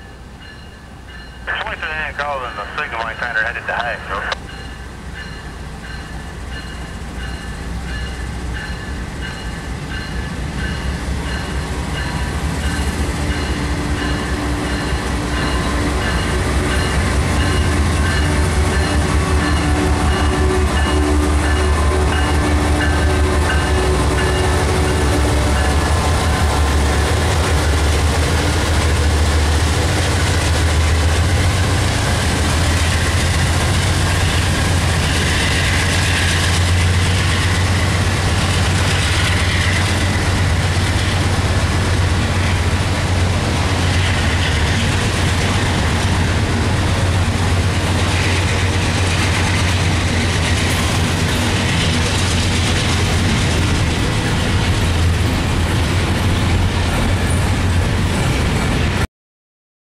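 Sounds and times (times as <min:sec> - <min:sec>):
crossing bell ringing: 0:00.0 - 0:01.6, 0:04.1 - 0:26.4
diesel locomotive engine rumble: 0:00.0 - 0:59.0.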